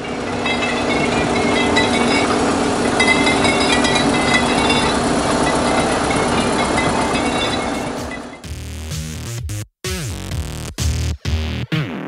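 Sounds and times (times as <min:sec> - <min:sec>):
track undercarriage squeaks: 0:00.0 - 0:08.5
diesel engine running: 0:00.0 - 0:08.8.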